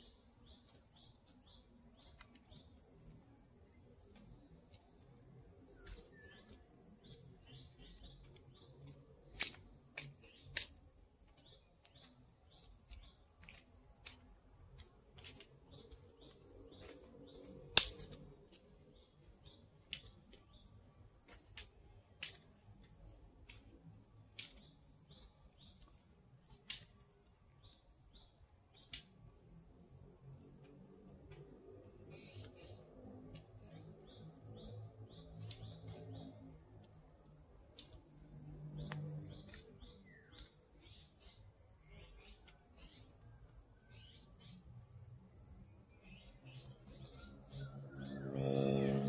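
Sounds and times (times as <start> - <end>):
birds chirping: 4.0 - 14.9, 31.9 - 38.0, 38.8 - 44.7
high-pitched insect drone: 47.6 - 49.0.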